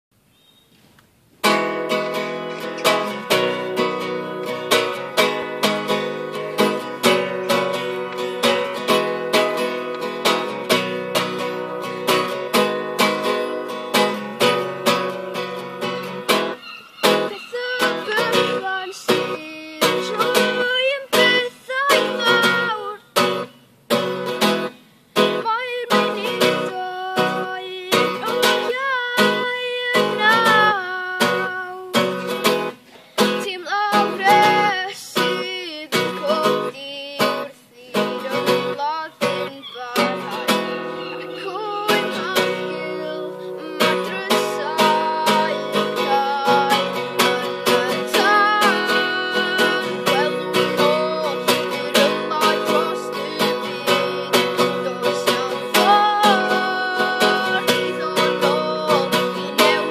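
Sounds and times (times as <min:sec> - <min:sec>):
acoustic guitar strumming: 0:01.4 - 0:59.9
boy singing: 0:01.9 - 0:59.9.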